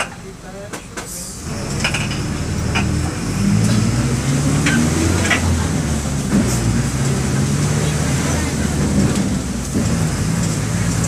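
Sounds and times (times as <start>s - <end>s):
diesel bus engine under load: 0.0s - 11.0s
sharp clicks and rattles: 1.6s - 3.8s.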